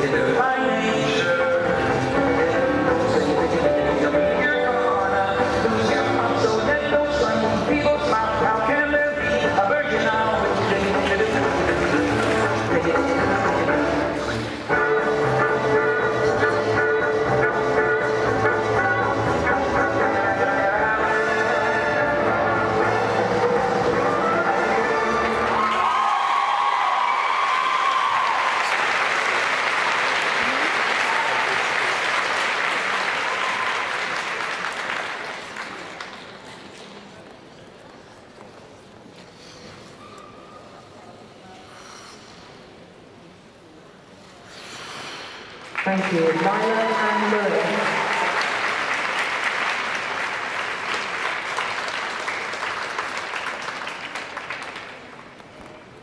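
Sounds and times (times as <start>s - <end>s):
audience applauding: 25.1s - 36.4s, 45.7s - 55.5s.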